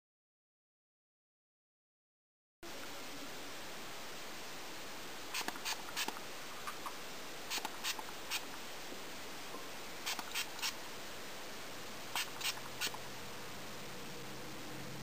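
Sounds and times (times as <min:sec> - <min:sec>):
steady background hiss: 0:02.6 - 0:15.0
spray bottle spritzes: 0:05.3 - 0:06.2, 0:07.5 - 0:08.4, 0:10.0 - 0:10.8, 0:12.2 - 0:13.0.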